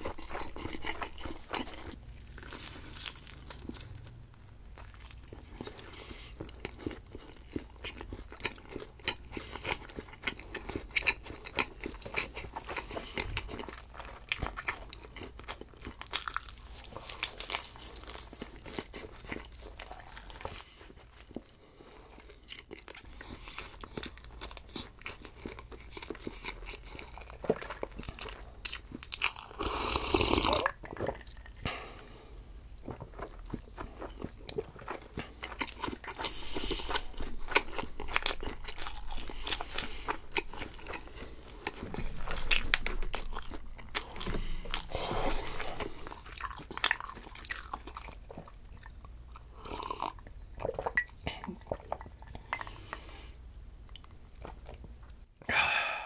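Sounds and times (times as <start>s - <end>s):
crunchy pizza chewing: 0.0s - 32.0s, 32.8s - 53.1s.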